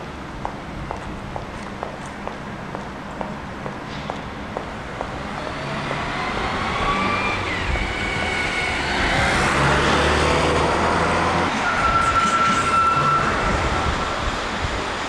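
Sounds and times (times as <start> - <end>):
road traffic: 0.0 - 15.0
vehicle engine approaching: 5.1 - 11.5.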